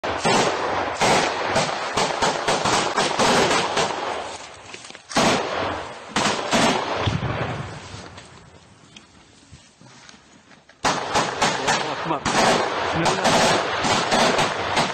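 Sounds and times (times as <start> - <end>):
rapid rifle shots: 0.0 - 4.3, 5.1 - 7.2, 10.8 - 14.9
single loud gunshots: 10.8 - 14.9.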